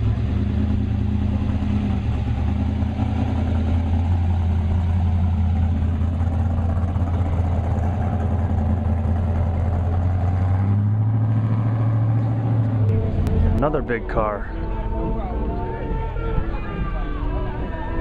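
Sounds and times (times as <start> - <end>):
car engine rumbling: 0.0 - 18.0.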